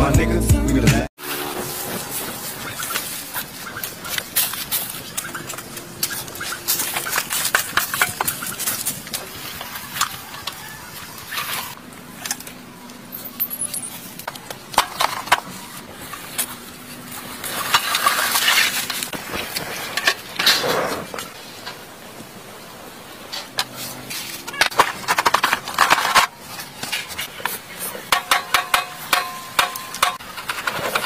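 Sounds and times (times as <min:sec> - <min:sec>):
metal clanks and scrapes: 0:01.2 - 0:12.5, 0:13.1 - 0:21.9, 0:23.3 - 0:31.0
dry brush rustling: 0:01.6 - 0:11.8.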